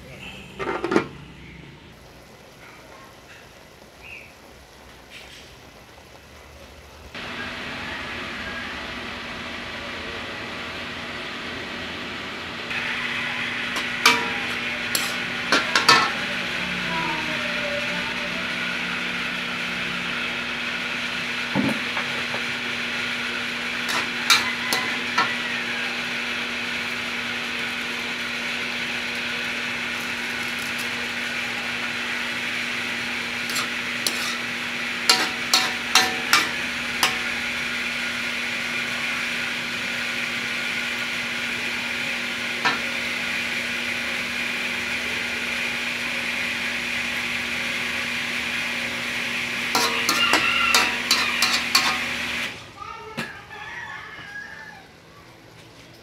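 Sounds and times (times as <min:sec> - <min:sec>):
food sizzling in a wok: 0:00.0 - 0:52.7
metal ladle clinking on pan: 0:35.1 - 0:37.3.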